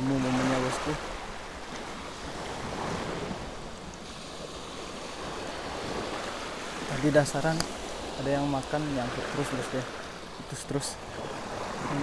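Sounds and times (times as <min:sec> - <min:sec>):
wind rumble on microphone: 0:00.0 - 0:09.5
small waves washing on shore: 0:00.0 - 0:12.0.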